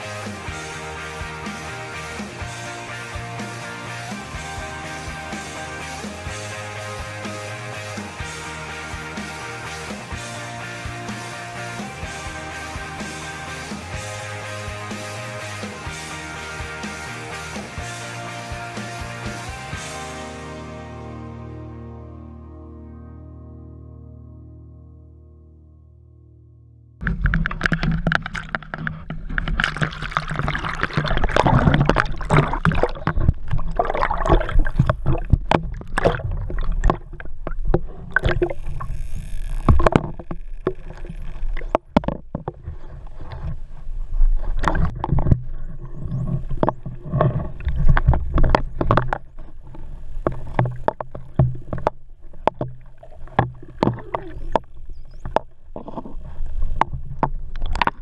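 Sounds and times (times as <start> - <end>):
dolphin clicks underwater: 27.0 - 42.7, 44.5 - 58.0
seawater rushing: 27.0 - 58.0.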